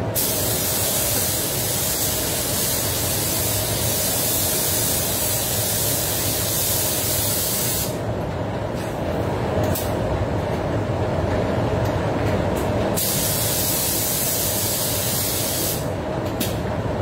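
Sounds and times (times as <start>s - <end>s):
paint spray gun hissing: 0.2s - 8.0s.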